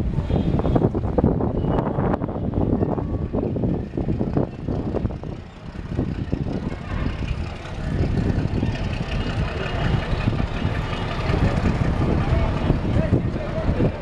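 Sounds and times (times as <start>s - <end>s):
diesel locomotive rumbling: 0.0s - 14.0s.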